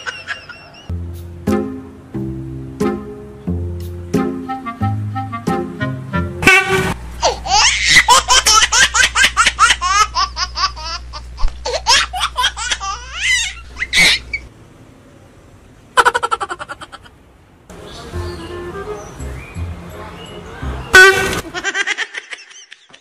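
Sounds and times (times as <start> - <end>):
high rapid laughter: 0.0 - 0.9, 7.2 - 14.4, 16.0 - 17.2, 21.4 - 23.0
loud buzzy burst: 6.4 - 7.1.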